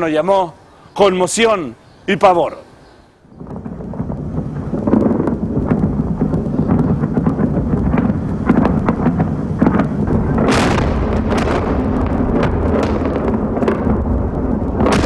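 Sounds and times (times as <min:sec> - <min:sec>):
sharp cracks: 0:03.2 - 0:15.0
big bomb blast: 0:03.3 - 0:15.0
heavy explosion rumble: 0:03.3 - 0:15.0.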